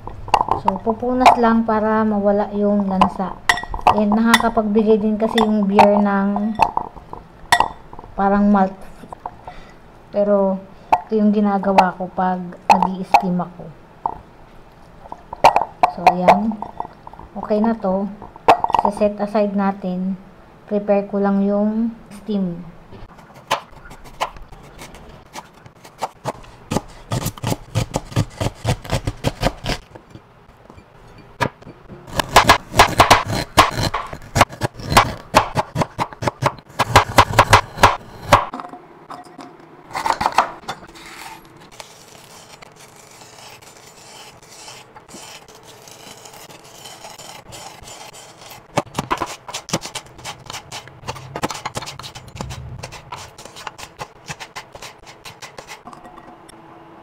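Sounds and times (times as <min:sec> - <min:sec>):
knife chopping on cutting board: 0:31.4 - 0:38.5.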